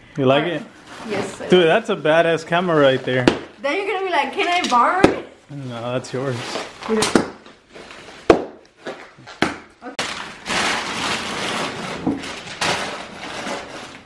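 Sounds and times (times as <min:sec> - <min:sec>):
wrapping paper rustling: 0:10.0 - 0:14.0.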